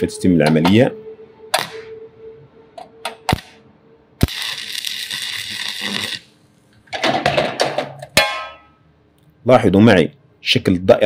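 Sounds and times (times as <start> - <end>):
welding arc crackling hiss: 4.2 - 6.4.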